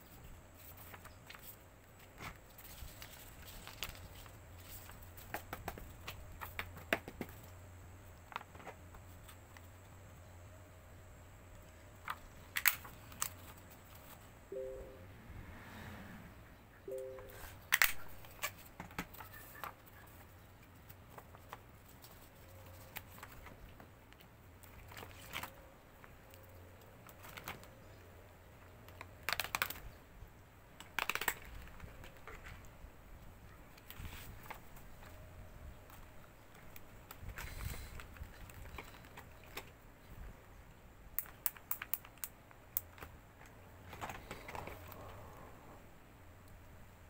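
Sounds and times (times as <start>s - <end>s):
short electronic beep: 14.5s - 15.2s, 16.9s - 17.5s
small objects clicking and tapping: 41.1s - 43.6s.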